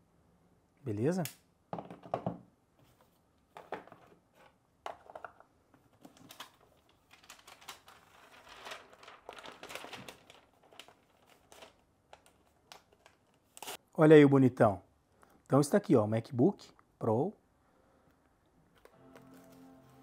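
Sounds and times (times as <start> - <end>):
packaging rustling and crinkling: 5.1 - 13.8.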